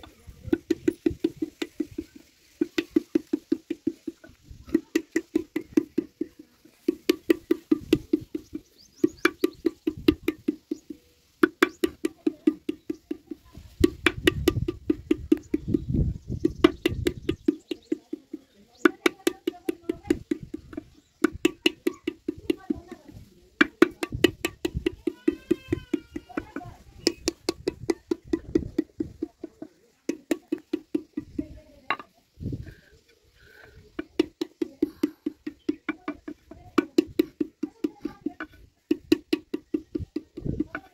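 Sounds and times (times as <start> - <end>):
wooden paddle knocking clay pot: 0.0 - 32.8, 33.4 - 40.9.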